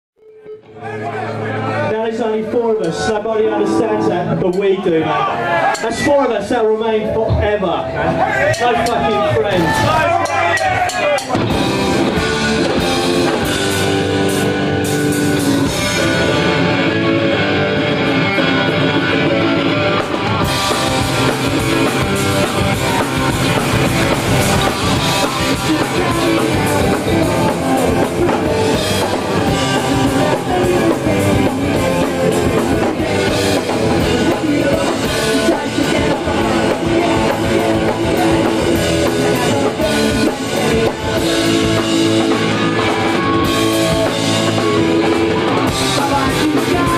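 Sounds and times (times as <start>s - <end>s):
electric guitars: 0.2s - 6.6s, 7.2s - 46.9s
drum kit with cymbals: 8.3s - 16.6s, 18.3s - 46.9s.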